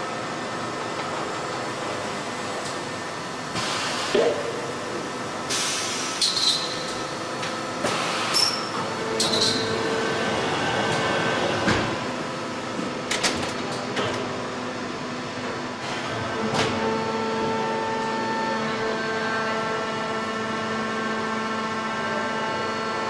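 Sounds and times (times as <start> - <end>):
machinery humming: 0.0 - 23.0
pneumatic air hisses: 5.5 - 6.8.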